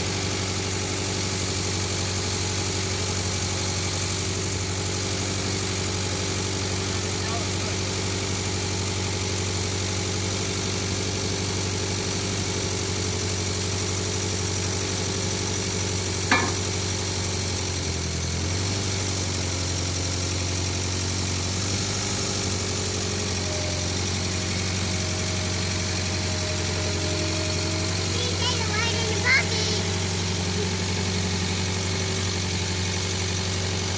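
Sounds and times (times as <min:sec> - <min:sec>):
loader engine idling: 0:00.0 - 0:10.7, 0:12.7 - 0:33.9
sharp knock: 0:16.3 - 0:16.7.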